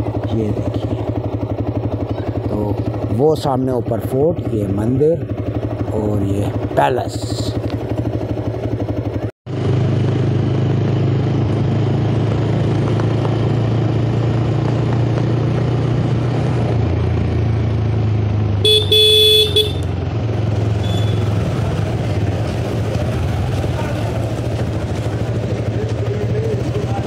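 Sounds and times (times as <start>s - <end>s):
motorcycle engine running: 0.0s - 27.0s
motorcycle horn: 18.6s - 20.0s, 20.8s - 21.5s.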